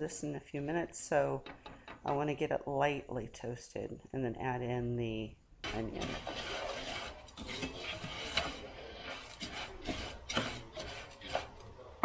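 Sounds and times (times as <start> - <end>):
spatula scraping rice in pan: 5.6 - 11.7.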